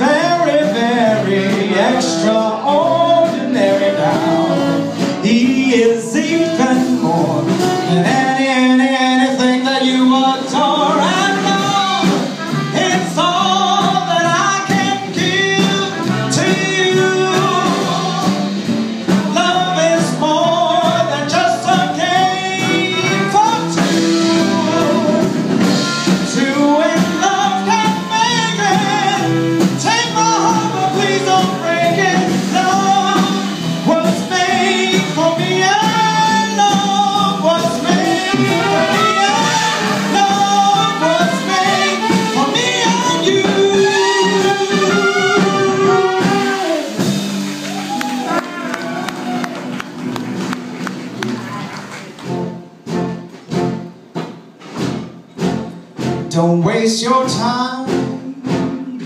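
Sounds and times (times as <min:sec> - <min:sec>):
trumpet: 0:00.0 - 0:53.9
guitar: 0:00.0 - 0:59.0
upright bass: 0:00.0 - 0:59.0
saxophone: 0:10.8 - 0:18.6, 0:22.2 - 0:35.1, 0:37.4 - 0:53.8.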